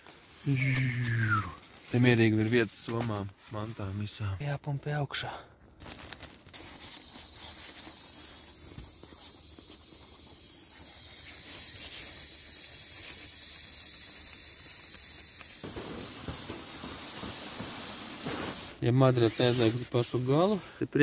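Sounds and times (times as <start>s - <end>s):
air hissing from pump sack: 0.0s - 2.7s, 6.5s - 20.8s.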